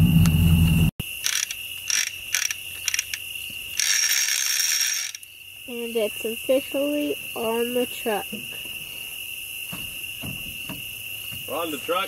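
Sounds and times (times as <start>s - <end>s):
truck engine idling: 0.0s - 0.9s
crickets chirping: 0.0s - 12.0s
hand hoist clicking and rattling: 1.2s - 3.2s, 3.8s - 5.2s.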